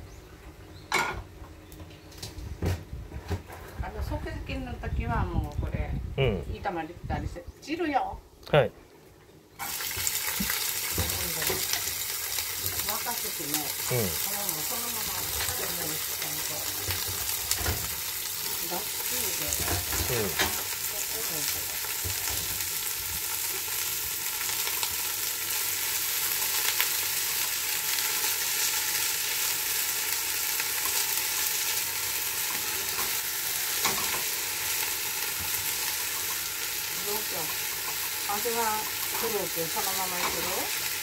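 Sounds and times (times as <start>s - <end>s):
food sizzling in a frying pan: 9.5s - 41.0s.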